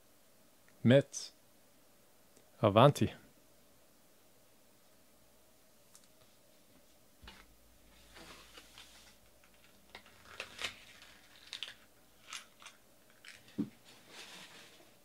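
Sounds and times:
cards clicking and rustling: 8.2s - 13.6s.

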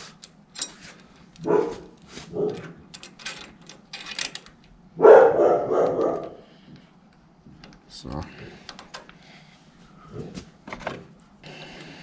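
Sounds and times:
dog barking: 1.4s - 2.6s, 5.0s - 6.4s.

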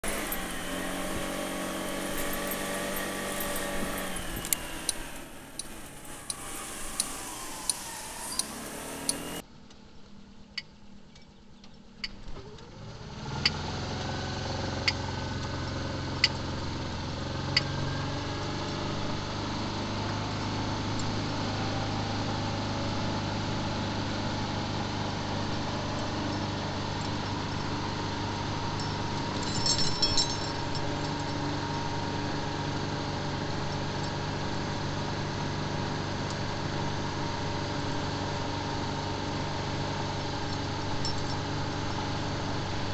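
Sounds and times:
metallic jingle: 0.0s - 4.2s, 28.8s - 31.4s, 41.0s - 41.4s
motorcycle engine droning: 0.0s - 9.4s.

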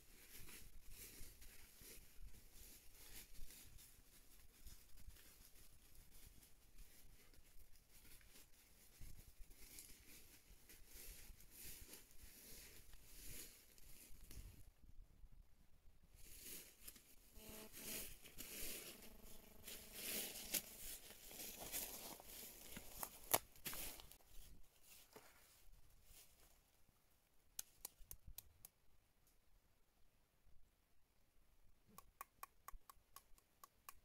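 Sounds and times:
footsteps crunching dry leaves: 0.1s - 14.3s, 16.2s - 26.3s.

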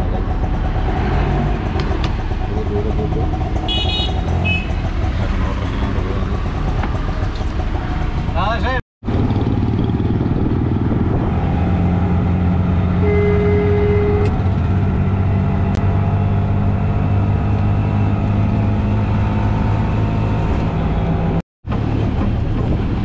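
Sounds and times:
vehicle engine running: 0.0s - 19.0s
road noise: 0.0s - 23.0s
brief high tone: 13.0s - 14.3s.

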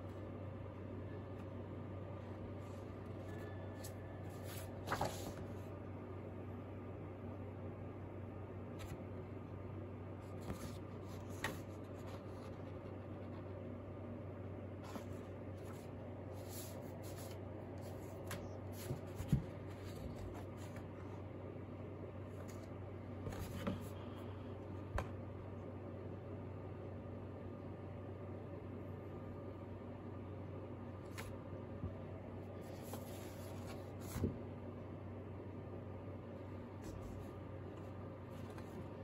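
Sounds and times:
paper rustling and sliding: 2.6s - 5.7s, 10.2s - 13.5s, 14.8s - 21.1s, 32.6s - 34.4s, 36.8s - 39.0s.

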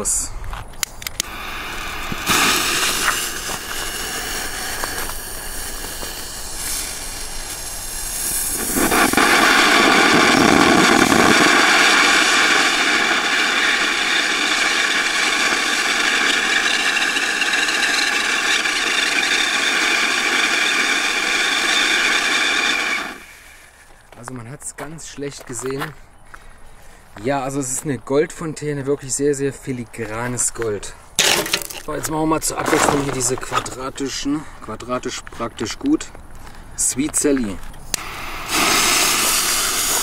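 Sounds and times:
firework fountain hissing: 1.2s - 23.8s, 37.9s - 40.0s.

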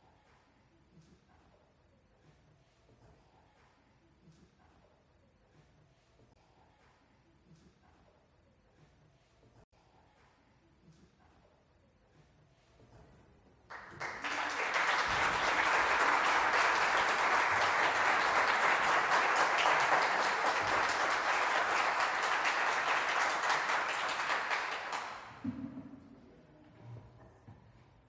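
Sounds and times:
audience applauding: 13.7s - 25.4s.

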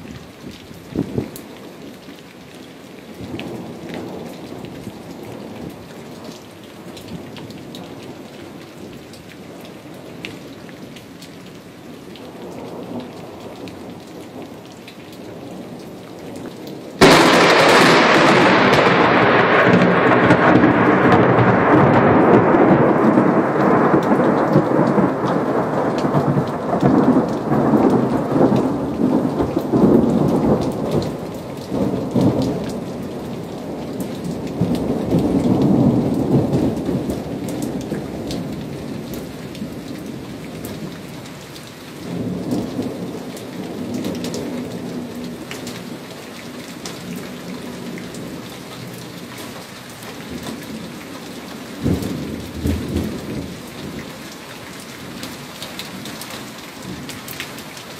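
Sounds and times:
rain pattering and dripping: 0.0s - 57.9s
sharp thunder clap: 17.0s - 30.6s
thunder rumbling: 17.0s - 41.0s, 51.7s - 54.0s.

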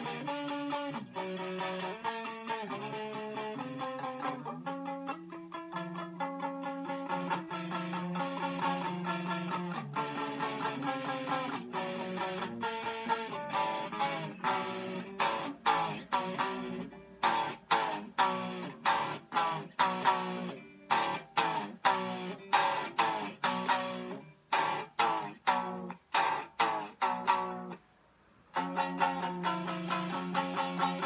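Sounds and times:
electric guitar chords struck: 6.6s - 27.7s.

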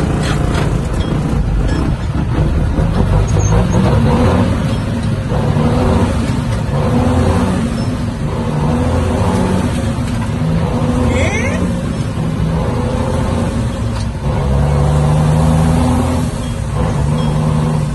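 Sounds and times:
truck diesel engine running: 0.0s - 17.9s.

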